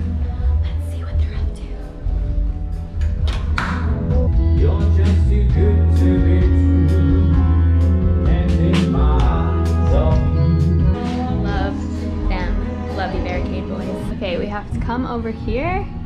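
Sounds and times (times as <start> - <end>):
steady drum beat: 0.4 - 15.8
band track with heavy bass: 2.1 - 13.0
singers performing: 3.7 - 14.9.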